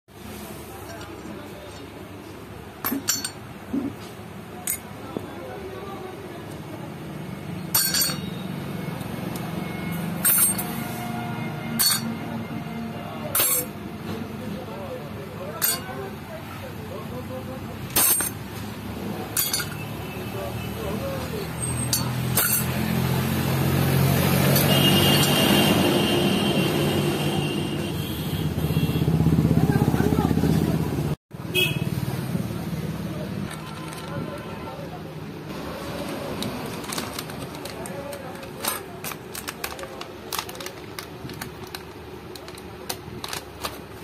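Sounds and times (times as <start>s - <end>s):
metal clutch plates clinking: 2.8s - 3.5s, 7.7s - 8.4s, 10.2s - 10.7s, 11.8s - 12.2s, 13.3s - 13.8s, 15.6s - 16.0s, 17.9s - 18.4s, 19.3s - 19.9s, 21.6s - 22.8s.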